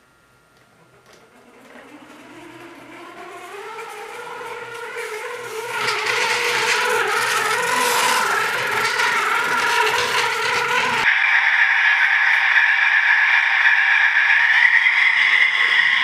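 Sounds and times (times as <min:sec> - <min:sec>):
train wheels on track: 0:00.6 - 0:11.1
model train motor whining: 0:00.6 - 0:16.0.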